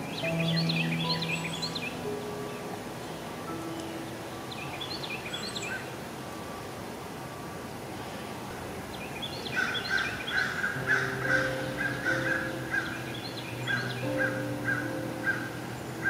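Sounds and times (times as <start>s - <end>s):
bird calling in sharp notes: 9.6s - 15.6s.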